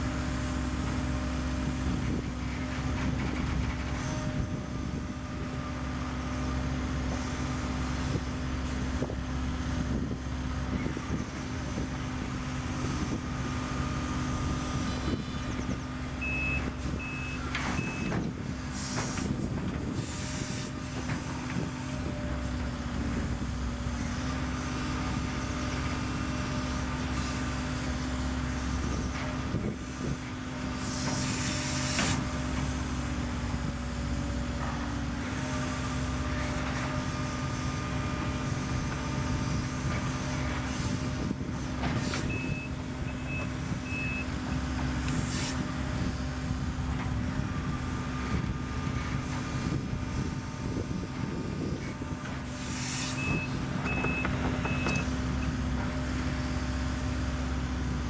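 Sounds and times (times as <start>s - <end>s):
excavator diesel engine: 0.0s - 58.0s
short alarm beeps: 16.2s - 18.1s, 42.3s - 44.3s
hydraulic hiss: 30.8s - 32.3s, 45.0s - 45.6s, 52.5s - 53.6s.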